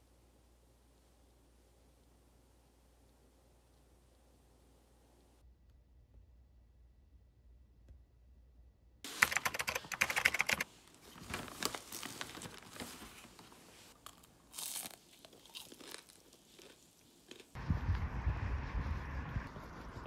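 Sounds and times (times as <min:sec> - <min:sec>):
plastic bag crinkling: 0:10.4 - 0:17.5.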